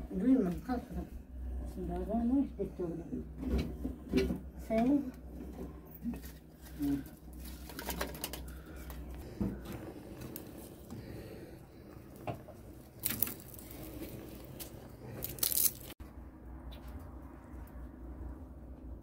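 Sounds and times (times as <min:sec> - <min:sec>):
crackly bursts: 0:07.6 - 0:16.0
crunching and rustling handling: 0:12.1 - 0:16.0.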